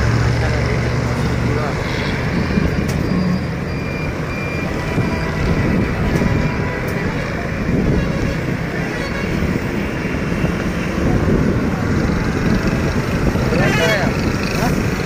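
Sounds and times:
road traffic rumble: 0.0 - 15.0
faint beeping tone: 2.6 - 5.4
wind on microphone: 4.6 - 15.0.

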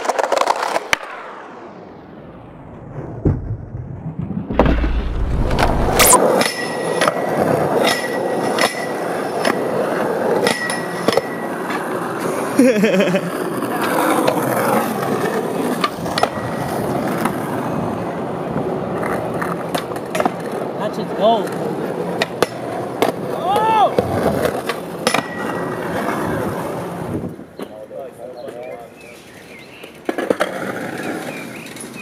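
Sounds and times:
skateboard wheels rolling on pavement: 0.0 - 32.0
skateboard clacks popping and landing: 13.6 - 17.5, 18.6 - 20.7, 21.4 - 26.2, 29.9 - 31.8.

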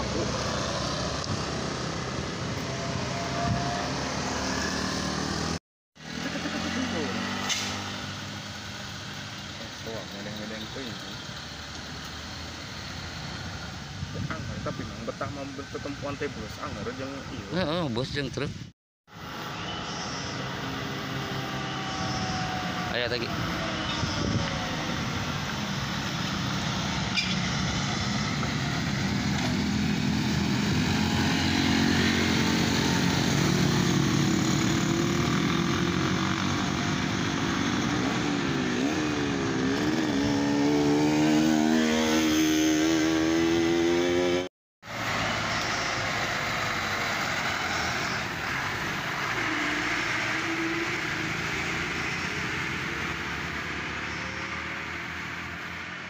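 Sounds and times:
truck engine revving: 0.0 - 11.1.

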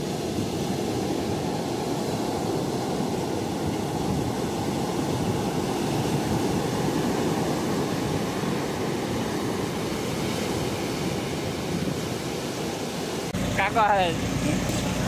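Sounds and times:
boat engine rumbling: 13.3 - 15.0.

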